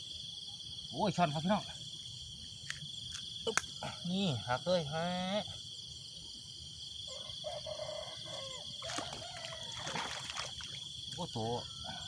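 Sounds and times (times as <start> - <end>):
insects chorus: 0.0 - 12.0
faint animal calls: 7.1 - 10.2
water splashing and dripping: 8.8 - 11.3.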